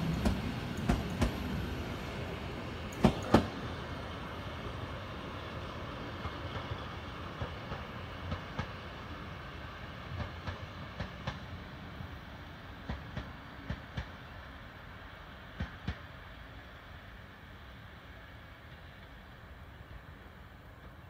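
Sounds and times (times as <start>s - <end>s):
train rolling over track: 0.0s - 21.0s
train wheel knocks: 2.9s - 3.6s.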